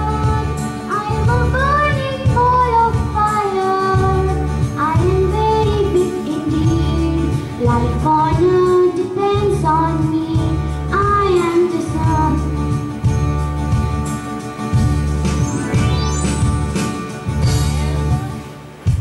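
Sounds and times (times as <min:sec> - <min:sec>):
backing music with pulsing bass: 0:00.0 - 0:08.8, 0:09.4 - 0:19.0
girl singing: 0:00.0 - 0:12.6.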